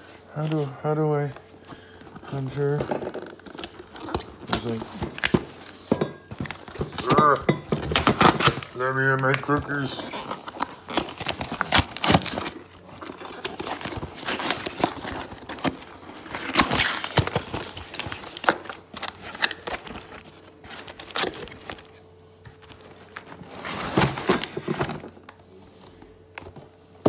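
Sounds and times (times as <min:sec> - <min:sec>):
cardboard box tearing: 0:02.6 - 0:05.5, 0:07.8 - 0:21.8.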